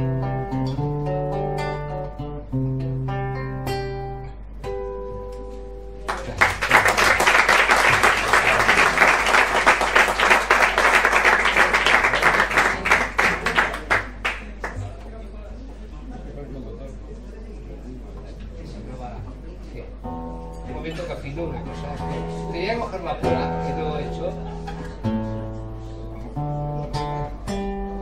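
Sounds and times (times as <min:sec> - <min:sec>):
acoustic guitar chords: 0:00.0 - 0:06.0, 0:20.0 - 0:28.0
audience applause: 0:06.1 - 0:14.8.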